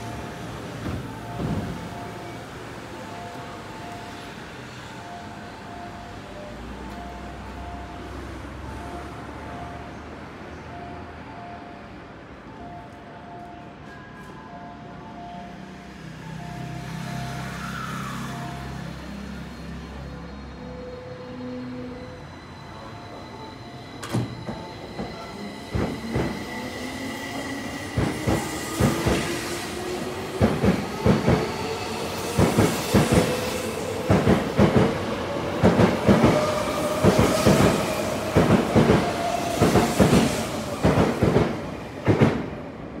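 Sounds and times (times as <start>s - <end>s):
train wheels clacking: 24.0s - 26.7s, 27.4s - 42.5s.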